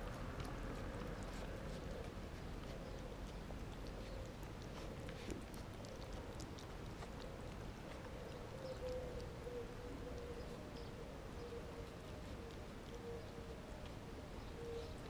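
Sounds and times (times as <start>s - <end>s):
cat chewing clicks: 0.0s - 9.3s.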